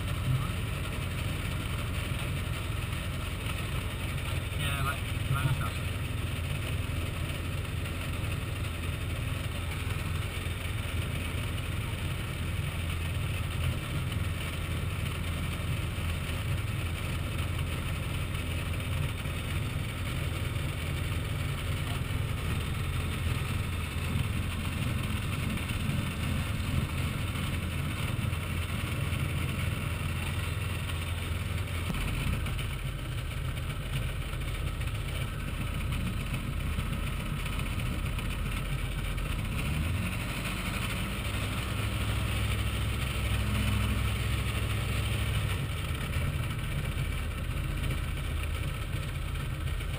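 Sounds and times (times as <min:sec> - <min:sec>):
airplane engine and propeller: 0:00.0 - 0:49.9.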